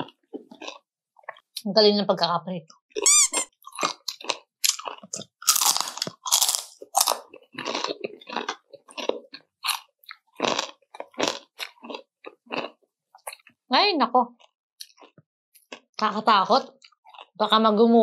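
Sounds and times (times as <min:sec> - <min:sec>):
crunchy chewing: 0:00.0 - 0:01.5, 0:03.0 - 0:13.5.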